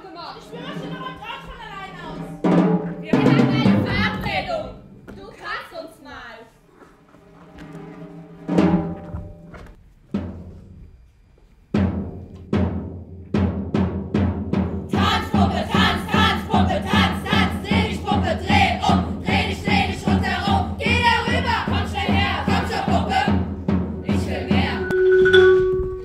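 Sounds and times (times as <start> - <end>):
steady drum beat: 0.0 - 5.4, 11.7 - 26.0
group of voices singing: 14.9 - 25.0.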